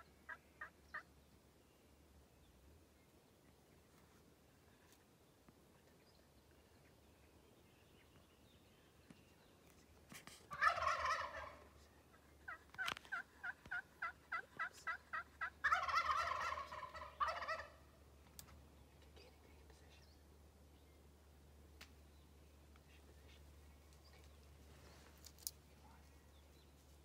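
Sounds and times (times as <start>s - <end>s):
turkey gobbling: 10.5s - 11.8s, 12.4s - 17.9s
short turkey calls: 10.5s - 18.0s.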